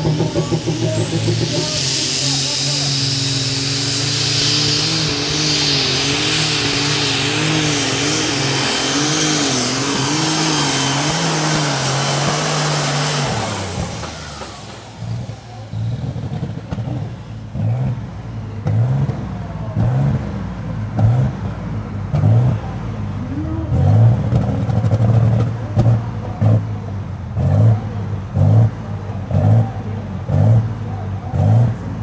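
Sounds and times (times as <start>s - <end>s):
tractor engine running under load: 0.0s - 17.5s.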